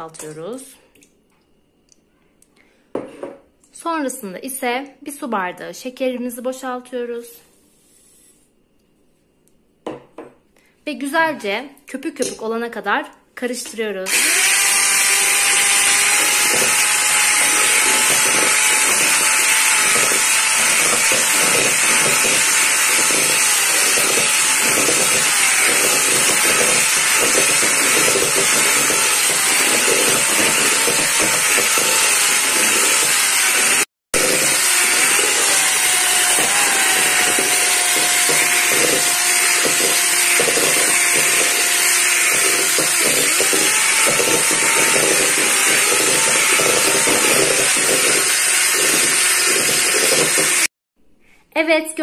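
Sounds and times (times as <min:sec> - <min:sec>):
electric hand mixer whisking: 0:14.1 - 0:50.7.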